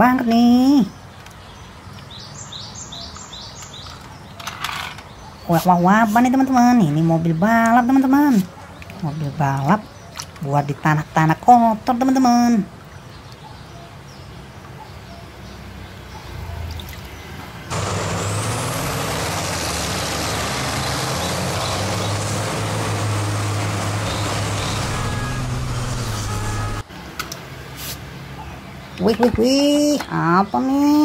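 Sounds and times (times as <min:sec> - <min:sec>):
truck engines droning: 0:17.4 - 0:28.7
loud rushing noise: 0:17.7 - 0:26.8.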